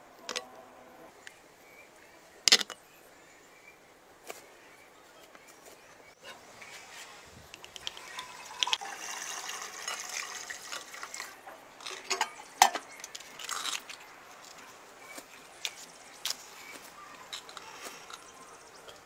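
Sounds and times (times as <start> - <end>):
water pouring into metal pot: 7.8 - 13.0.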